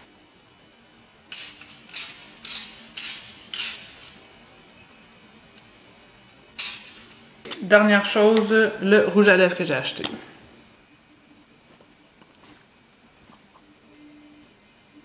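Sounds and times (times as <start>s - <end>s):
spray bottle hisses: 6.6s - 7.1s.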